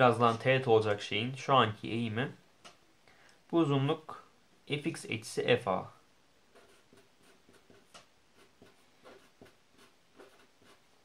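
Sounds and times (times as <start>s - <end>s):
marker writing on paper: 6.5s - 10.9s.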